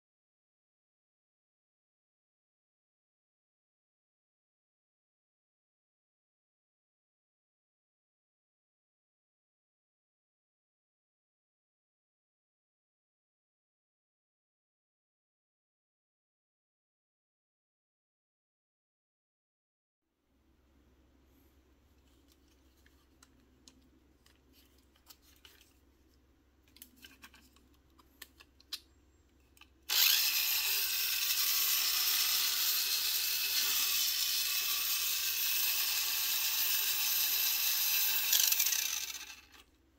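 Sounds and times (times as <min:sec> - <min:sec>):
small electric motor whine: 0:29.9 - 0:39.7.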